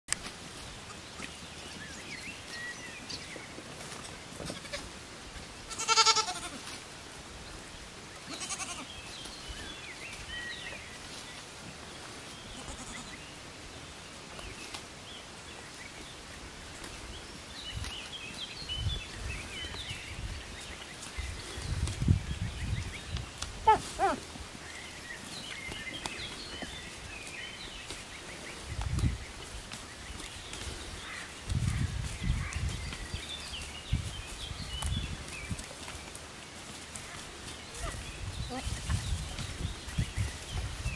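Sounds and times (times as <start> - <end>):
goat bleating: 4.5 - 4.9, 5.7 - 6.6, 8.3 - 8.9, 12.6 - 13.2.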